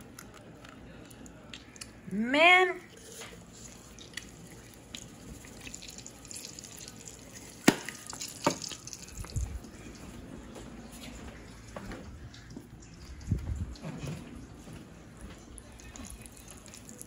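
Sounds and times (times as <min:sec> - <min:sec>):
sharp frying pops: 0:05.8 - 0:09.1.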